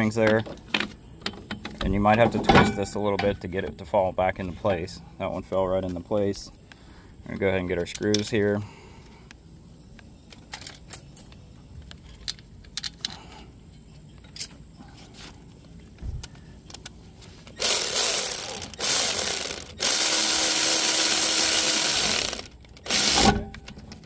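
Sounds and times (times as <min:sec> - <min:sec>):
light clicks of screws and parts: 0:05.8 - 0:14.6, 0:15.6 - 0:17.6
cordless ratchet running: 0:17.6 - 0:23.4.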